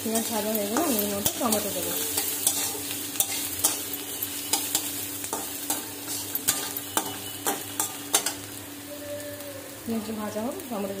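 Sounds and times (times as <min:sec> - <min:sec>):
onions sizzling in oil: 0:00.0 - 0:11.0
metal spatula scraping pan: 0:00.2 - 0:08.4.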